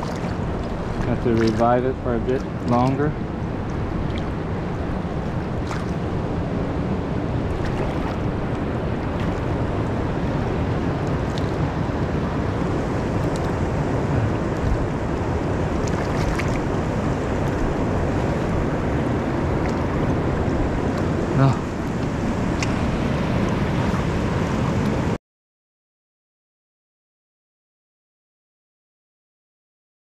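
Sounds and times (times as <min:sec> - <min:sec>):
faint small splashes: 0:00.0 - 0:03.0, 0:03.6 - 0:04.4, 0:05.5 - 0:06.0, 0:07.5 - 0:09.5, 0:15.8 - 0:16.8
river rushing over rocks: 0:00.0 - 0:25.2.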